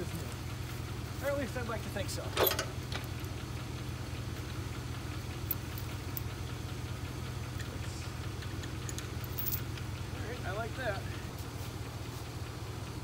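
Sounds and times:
tractor engine idling: 0.0 - 13.0
tow chain clinking: 5.4 - 6.3, 8.6 - 9.7.

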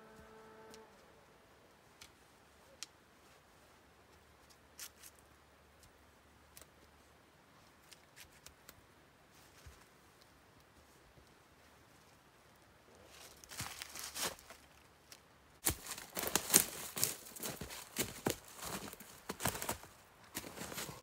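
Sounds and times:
clicks and rustles of cord: 4.1 - 7.0.

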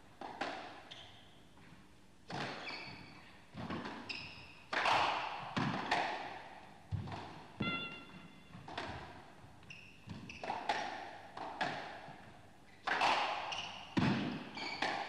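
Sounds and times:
shoes squeaking on floor: 0.9 - 1.3, 2.5 - 4.6, 7.6 - 8.7, 9.6 - 10.5, 13.5 - 15.0
racket striking ball: 4.7 - 9.2, 10.1 - 12.1, 12.8 - 13.4.

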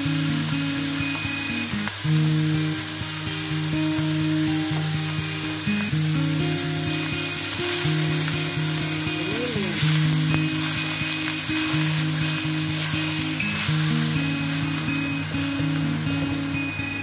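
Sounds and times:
meat sizzling in a wok: 0.0 - 17.0.

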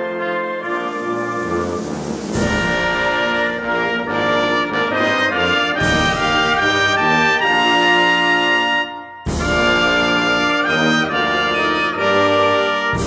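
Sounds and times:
brass music with trumpets: 0.0 - 13.0.

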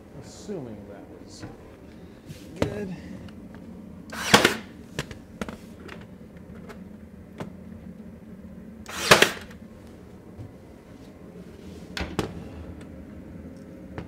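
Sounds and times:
brad nailer firing: 4.1 - 4.8, 8.9 - 9.6.

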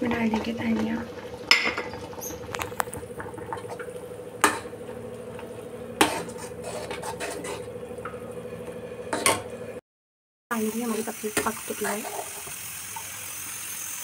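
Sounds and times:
steady hum: 1.0 - 9.8
spoon knocking against iron pan: 3.3 - 4.7.

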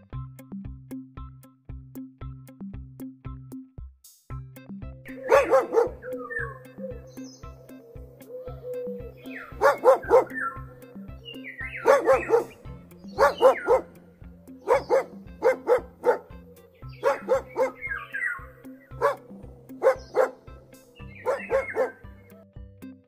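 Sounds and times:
background music with beat: 0.0 - 23.0
dog barking: 5.1 - 6.6, 9.2 - 10.8, 11.4 - 22.1
dog whining: 5.1 - 10.7, 11.3 - 12.6, 13.2 - 14.0, 14.6 - 22.0.

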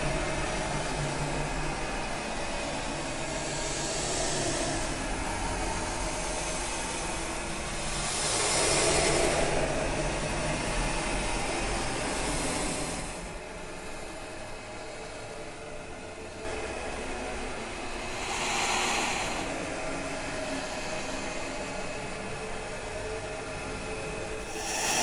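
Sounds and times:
hiss: 6.3 - 9.7, 12.0 - 13.2, 17.9 - 22.3, 24.4 - 25.0
droning rumble: 17.1 - 25.0.

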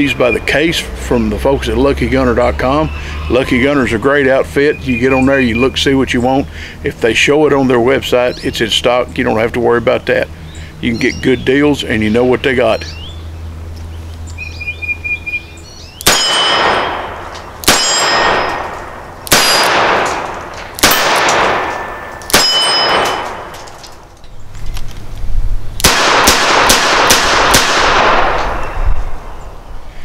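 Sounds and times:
metallic ring: 16.1 - 19.7, 21.6 - 23.6.

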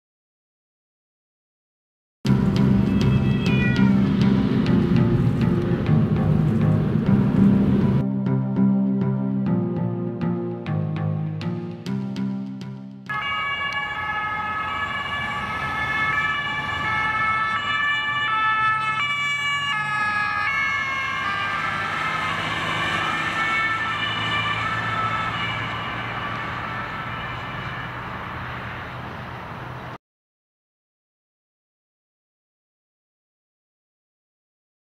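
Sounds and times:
road noise: 2.3 - 8.1, 13.1 - 30.0
police two-tone sirens: 13.1 - 29.7.

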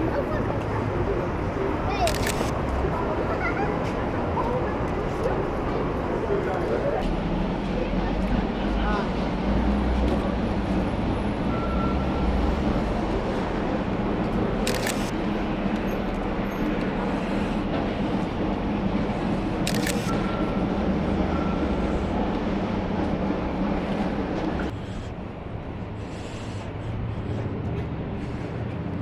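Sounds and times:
street noise: 0.0 - 29.0
camera shutter clicks: 2.1 - 2.6, 14.6 - 15.1, 19.6 - 20.2.

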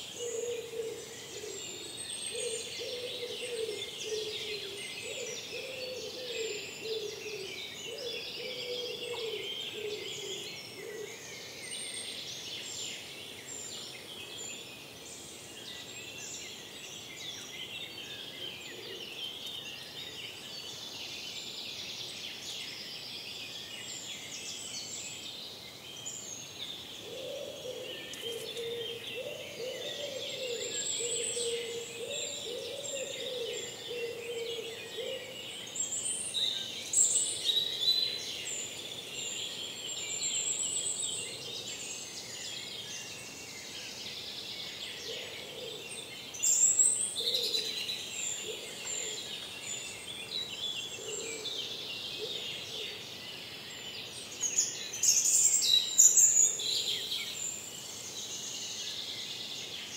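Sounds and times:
songbirds chirping and trilling: 0.0 - 59.9.

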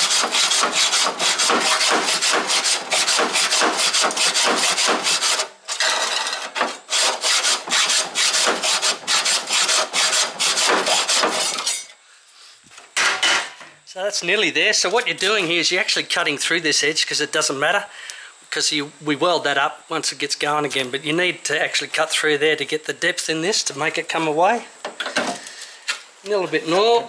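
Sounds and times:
hacksaw cutting sheet steel: 0.0 - 11.9.

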